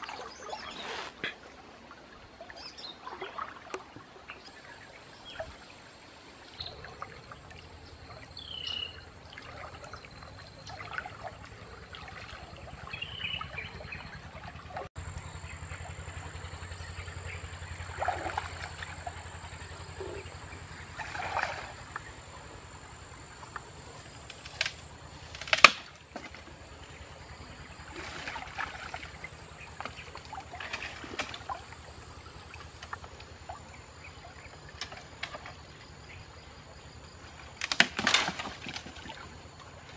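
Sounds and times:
water sloshing around wading person: 0.0 - 39.9
dry branches snapping: 24.3 - 26.4, 37.6 - 39.0.

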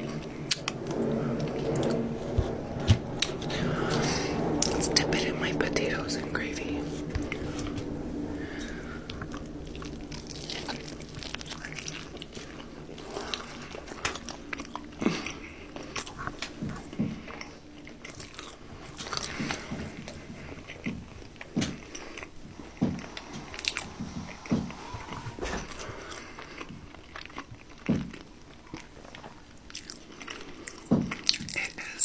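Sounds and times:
person biting and chewing: 9.6 - 16.2.

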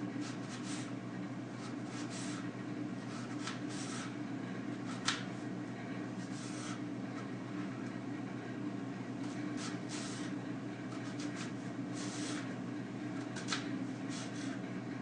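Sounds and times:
knife cutting onion: 0.2 - 0.9, 1.6 - 4.2, 4.8 - 5.3, 6.2 - 6.8, 9.2 - 12.5, 13.2 - 14.6.

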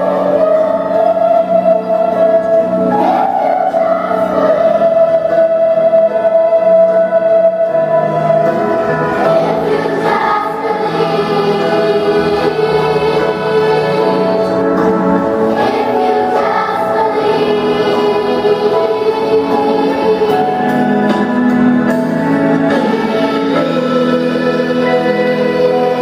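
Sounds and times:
children's choir singing: 0.0 - 26.0.

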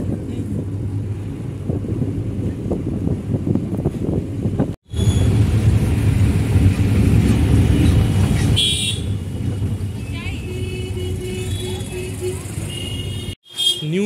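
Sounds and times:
car engine and road rumble: 0.0 - 13.8
car horn toot: 8.4 - 9.2, 10.3 - 14.0.

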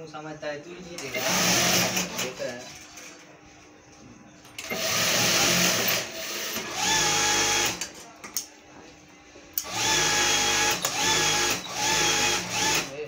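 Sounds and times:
sewing machine stitching: 1.0 - 2.4, 4.6 - 7.8, 9.7 - 13.0.

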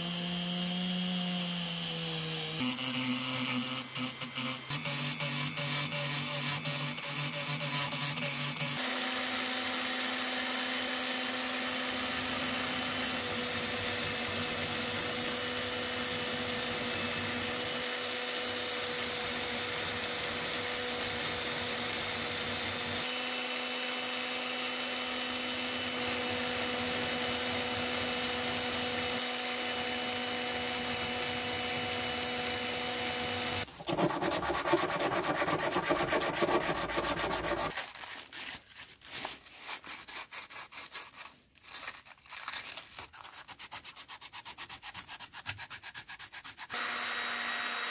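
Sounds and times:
drill spinning wire brush: 1.7 - 38.3, 46.7 - 47.9
sanding by hand on sandpaper: 4.4 - 8.8, 33.8 - 42.0, 42.6 - 46.8.

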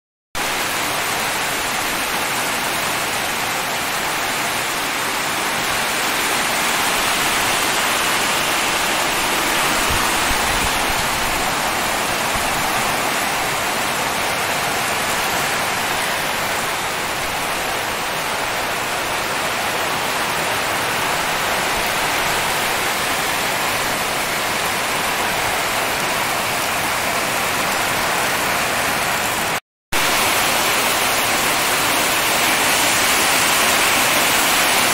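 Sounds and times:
heavy rain falling: 0.4 - 34.9.

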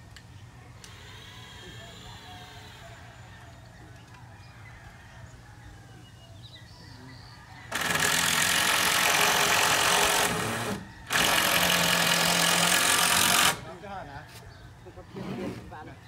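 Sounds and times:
power tool running: 0.8 - 2.8, 7.7 - 13.6.

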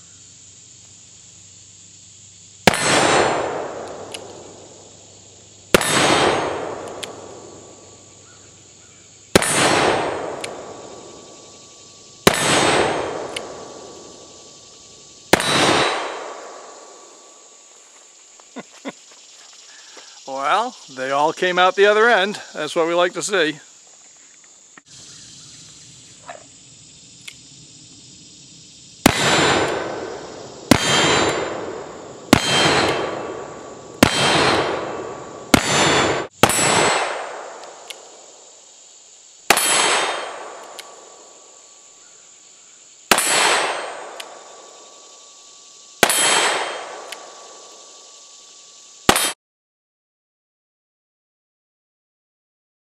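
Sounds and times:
metallic ring of steel target: 30.7 - 37.2, 39.5 - 40.5, 43.1 - 44.1, 46.0 - 47.0, 49.1 - 49.4.

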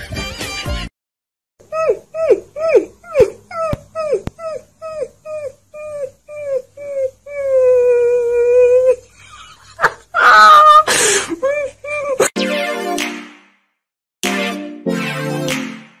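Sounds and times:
puppy howling and yipping: 1.8 - 9.0.

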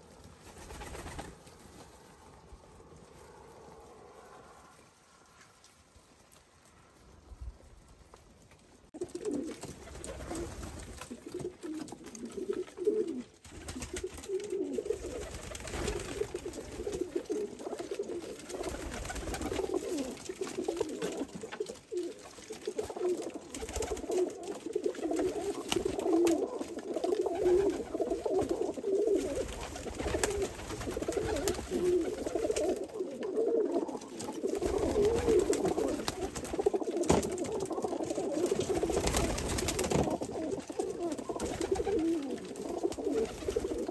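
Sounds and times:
pigeons cooing: 9.0 - 43.9.

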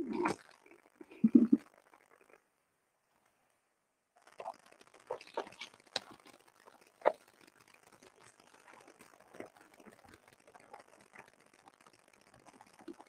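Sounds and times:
rustling and crinkling: 4.2 - 11.3.

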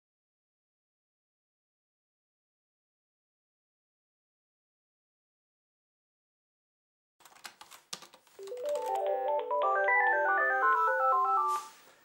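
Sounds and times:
electronic phone ringtone: 8.4 - 11.8.

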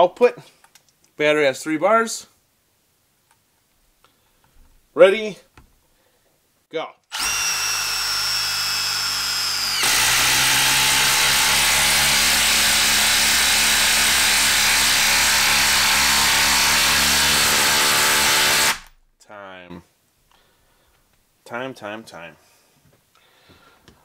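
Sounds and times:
impact driver motor whine: 7.1 - 13.6
impact driver hammering: 7.1 - 18.9.

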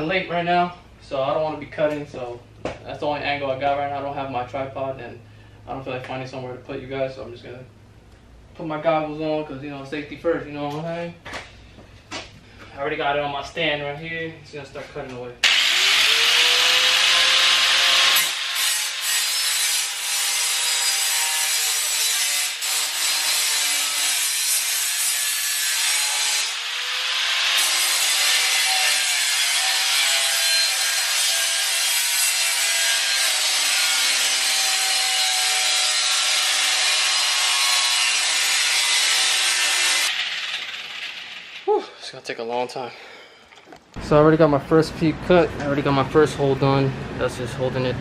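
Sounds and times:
angle grinder cutting sheet metal: 15.4 - 41.7.

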